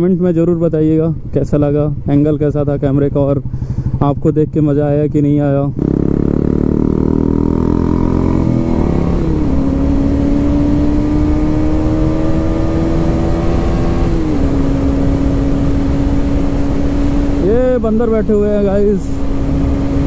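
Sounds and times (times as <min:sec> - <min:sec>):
wind rushing over microphone: 0:05.6 - 0:20.0
motorcycle engine shifting gears: 0:05.7 - 0:17.6.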